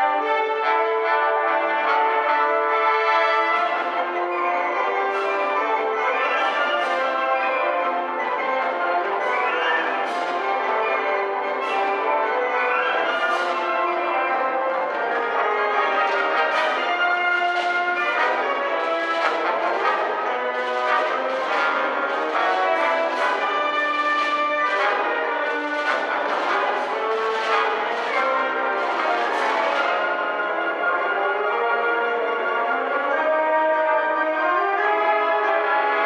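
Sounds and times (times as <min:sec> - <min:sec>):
wind band playing chords: 0:00.0 - 0:36.0.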